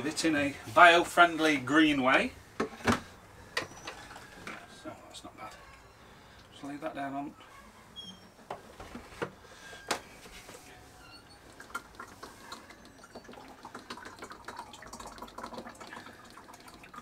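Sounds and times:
oil trickling into container: 11.2s - 17.0s.

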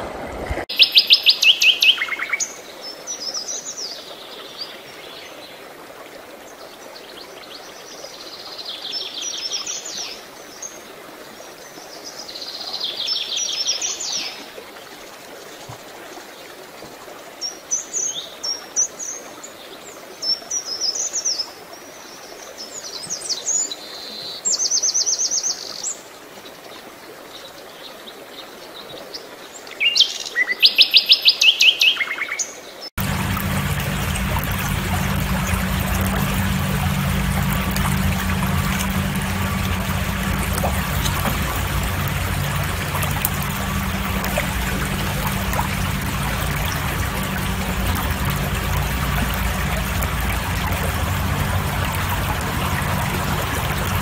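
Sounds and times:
songbirds singing: 29.8s - 54.0s.

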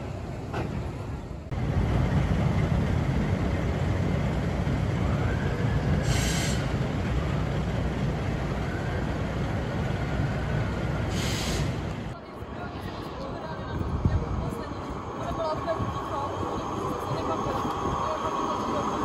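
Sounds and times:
tram rumbling on rails: 0.0s - 19.0s
short hisses: 6.0s - 6.8s, 11.1s - 11.8s.

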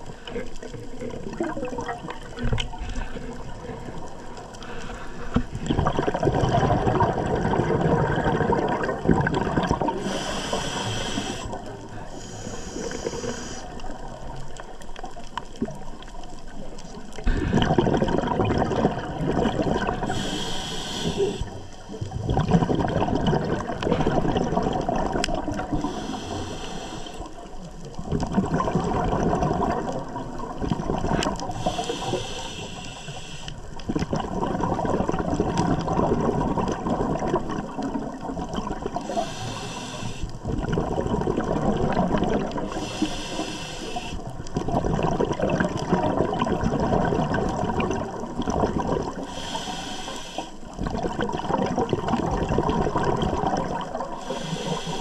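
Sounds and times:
gurgling exhaled bubbles: 0.0s - 49.9s, 50.6s - 55.0s
regulator inhale hiss: 4.4s - 5.6s, 9.9s - 13.9s, 20.0s - 22.0s, 25.7s - 27.5s, 31.4s - 33.8s, 39.0s - 40.4s, 42.7s - 44.3s, 49.2s - 50.8s, 54.1s - 55.0s.

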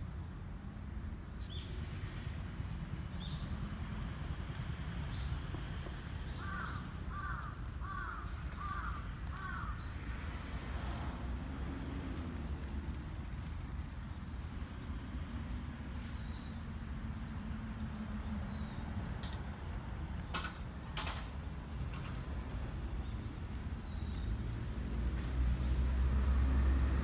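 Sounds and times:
crow cawing: 6.4s - 9.8s.

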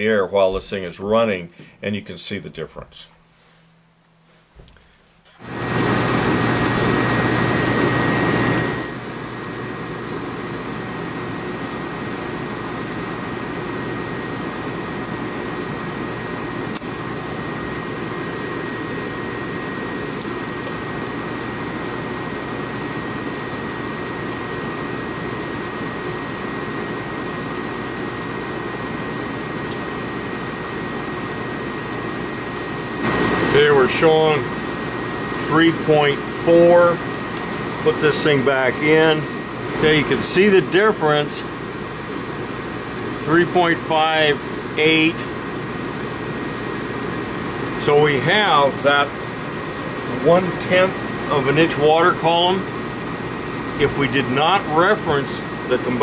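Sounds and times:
gas furnace blower and burner: 3.2s - 56.0s
thin high whine: 28.7s - 56.0s.

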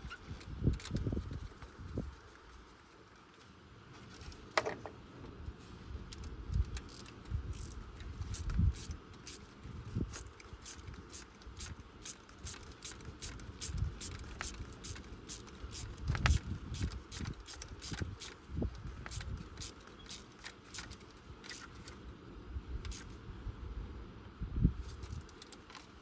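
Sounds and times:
hand ratchet clicking: 10.1s - 21.7s.

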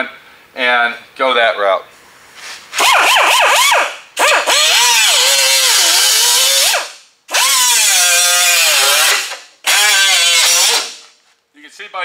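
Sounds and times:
cut-off wheel cutting metal: 2.8s - 11.0s.

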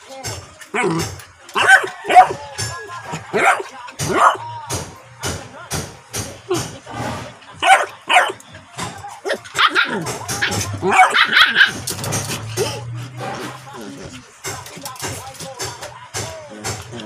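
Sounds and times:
dogs barking and yipping: 0.6s - 4.5s, 7.6s - 15.0s.

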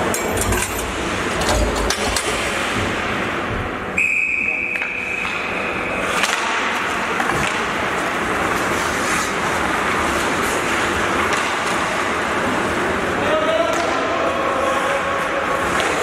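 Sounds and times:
hockey sticks clacking: 4.5s - 14.3s, 15.1s - 16.0s
skate blades scraping ice: 5.1s - 13.1s.

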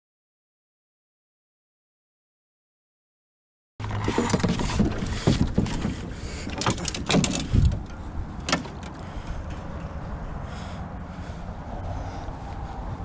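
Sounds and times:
canoe splashes and knocks: 3.8s - 7.6s
wind noise on microphone: 4.0s - 10.6s.

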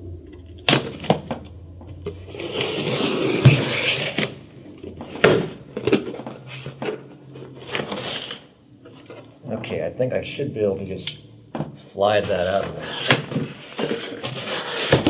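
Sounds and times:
knife cutting cardboard: 2.3s - 4.3s, 12.3s - 15.0s.

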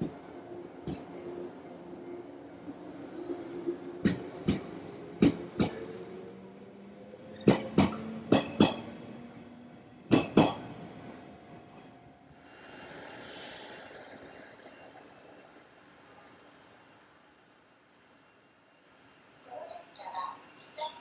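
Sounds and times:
train wheels clacking over rail joints: 4.0s - 5.8s, 7.4s - 8.9s, 10.1s - 10.8s.

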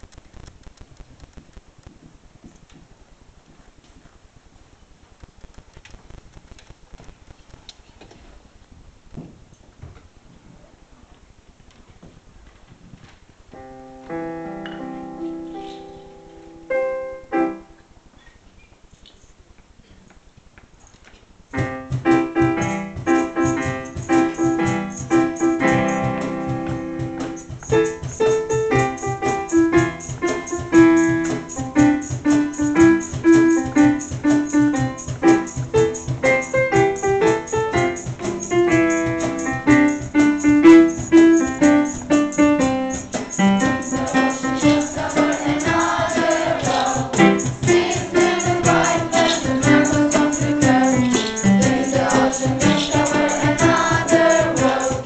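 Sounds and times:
keyboard playing piano chords: 13.5s - 17.9s, 21.5s - 55.0s
choir of young voices singing: 43.7s - 55.0s.

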